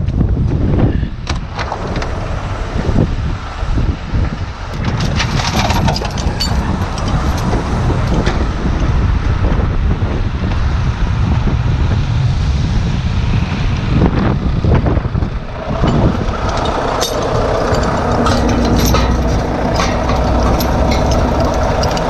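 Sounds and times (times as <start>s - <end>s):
heavy truck rumbling: 0.0s - 22.0s
wind buffeting microphone: 0.0s - 22.0s
clicks and knocks: 15.8s - 22.0s.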